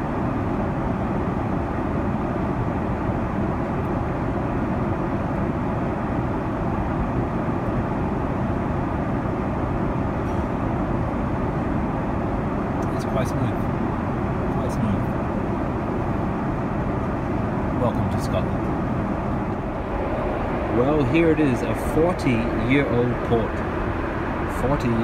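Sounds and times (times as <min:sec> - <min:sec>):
airliner cabin roar: 0:00.0 - 0:25.0.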